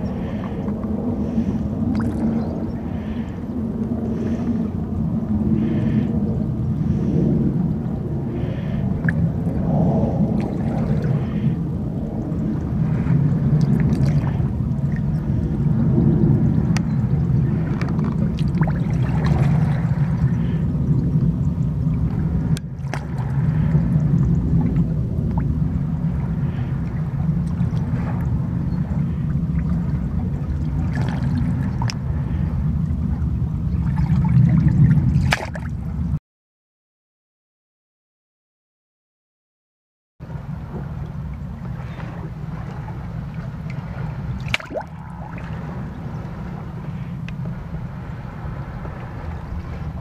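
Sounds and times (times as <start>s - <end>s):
water washing around rocks: 43.5s - 45.8s
water drips and clicks: 44.4s - 44.9s.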